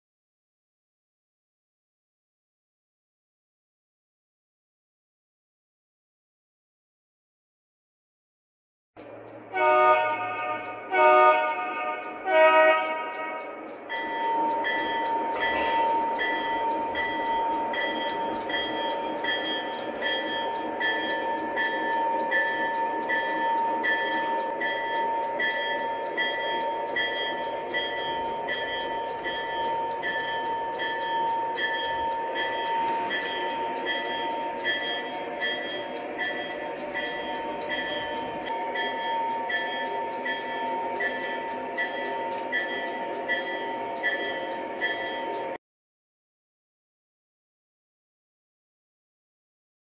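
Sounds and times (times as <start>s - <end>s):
high steady tone: 9.0s - 45.6s
model train running: 9.0s - 45.6s
model train horn blasts: 9.5s - 13.6s.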